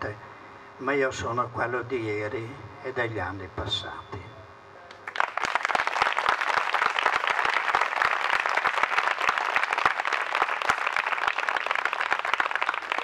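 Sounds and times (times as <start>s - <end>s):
crowd applauding: 4.9s - 13.0s.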